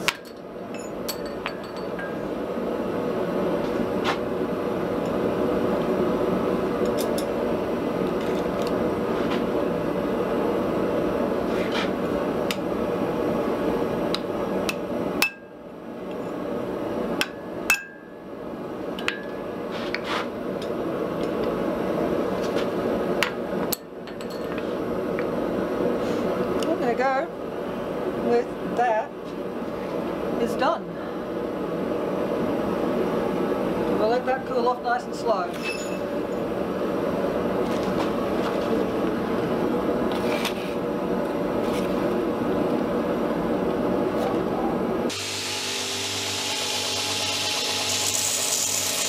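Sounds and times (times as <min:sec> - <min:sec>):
hammer striking hot iron on anvil: 0:14.7 - 0:15.5, 0:17.2 - 0:18.2.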